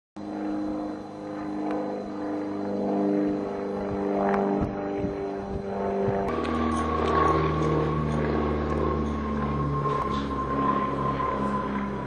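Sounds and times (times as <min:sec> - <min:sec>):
train engine droning: 0:06.3 - 0:12.0.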